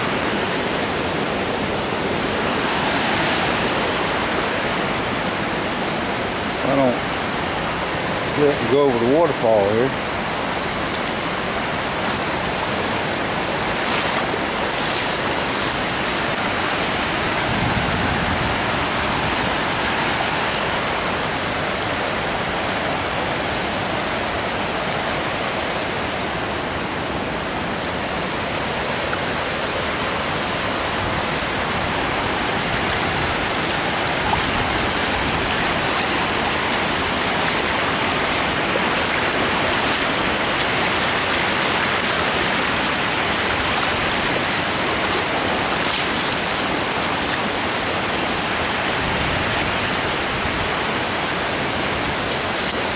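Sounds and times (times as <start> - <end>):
water rushing over dam: 0.0 - 52.9.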